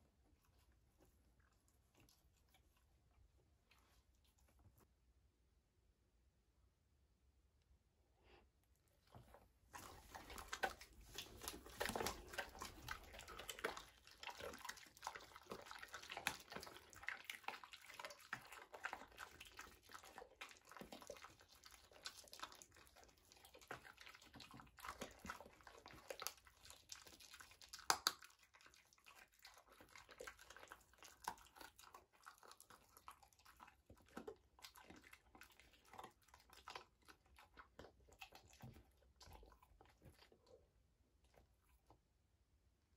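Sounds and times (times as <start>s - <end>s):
dogs chewing and crunching food: 0.0s - 4.8s, 9.0s - 42.1s
wet smacking and licking: 0.0s - 4.9s, 9.0s - 42.1s.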